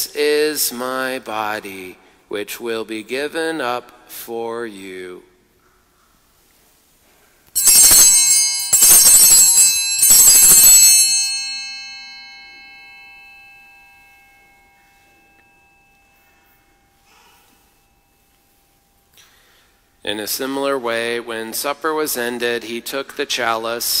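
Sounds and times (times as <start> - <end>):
altar bells ringing: 7.6 - 20.0.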